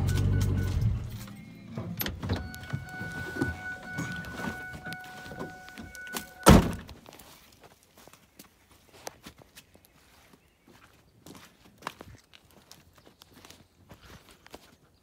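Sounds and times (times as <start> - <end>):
steady high tone: 0.0 - 6.6
truck door slammed shut: 6.4 - 6.9.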